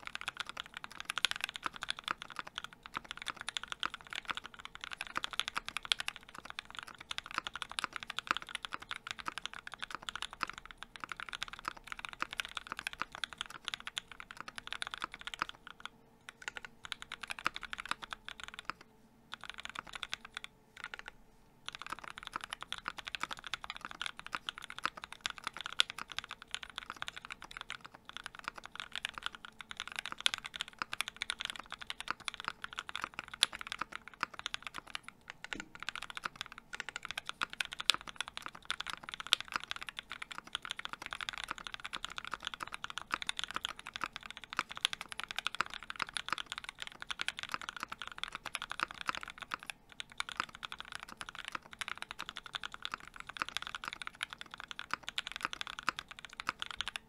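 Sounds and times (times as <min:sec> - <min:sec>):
fast mechanical keyboard typing: 0:00.0 - 0:21.1, 0:21.7 - 0:57.0
faint steady hum: 0:00.0 - 0:57.0.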